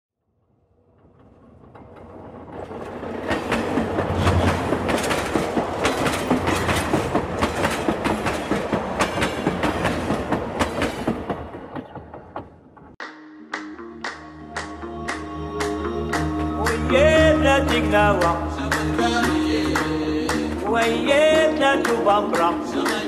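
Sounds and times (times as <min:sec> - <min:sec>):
train wheels clacking on rails: 0:01.0 - 0:13.0.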